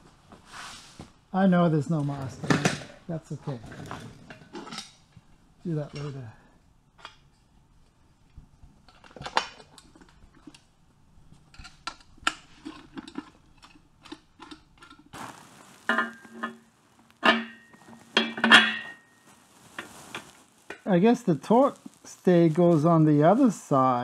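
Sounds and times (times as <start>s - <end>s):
metal tools clinking and clanking: 17.2s - 19.1s.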